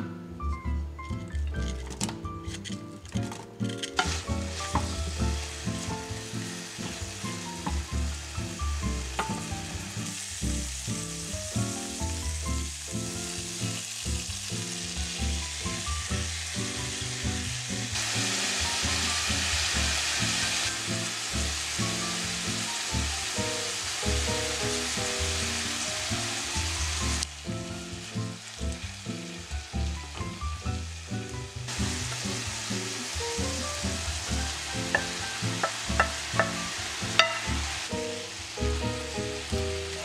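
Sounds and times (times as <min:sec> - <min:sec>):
soft background music: 0:00.0 - 0:40.0
wooden spatula stirring: 0:02.5 - 0:07.9
vegetables sizzling in oil: 0:03.8 - 0:40.0.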